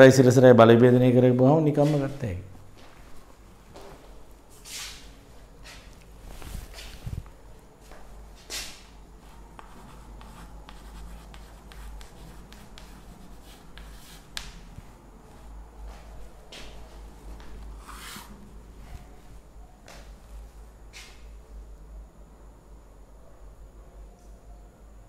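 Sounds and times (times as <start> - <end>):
chalk scratching on blackboard: 9.2 - 14.6, 17.8 - 18.4
chalk tapping: 9.2 - 16.0, 17.4 - 18.4.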